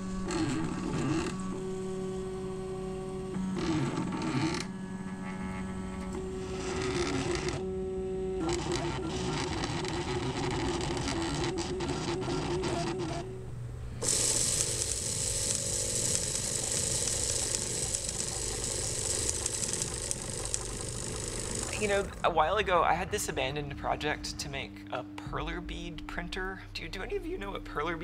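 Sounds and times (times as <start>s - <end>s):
small motor buzzing: 0.0s - 22.2s
printer motors whining: 0.0s - 23.4s.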